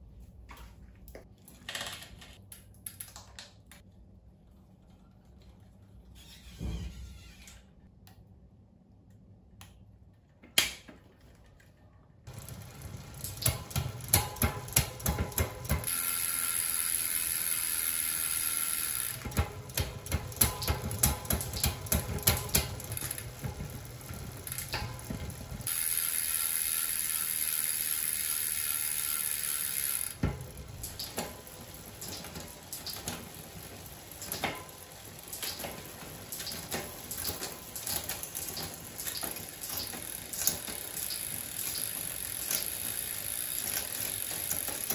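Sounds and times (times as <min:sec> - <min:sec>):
bicycle chain running over cassette: 0:12.3 - 0:44.9
freehub ratchet clicking: 0:12.3 - 0:44.9.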